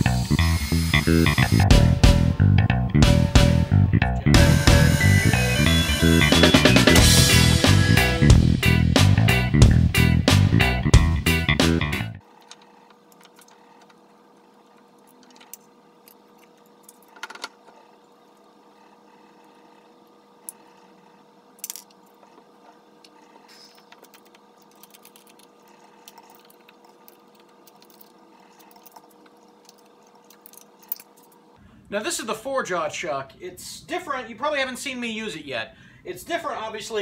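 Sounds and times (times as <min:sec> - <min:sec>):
faint electrical hum: 0:12.1 - 0:37.0.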